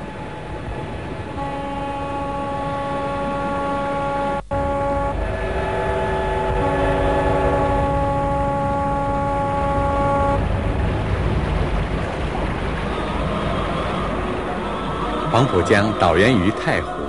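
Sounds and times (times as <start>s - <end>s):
low rumble: 0.0s - 15.3s
ship horns blasting: 1.3s - 11.0s.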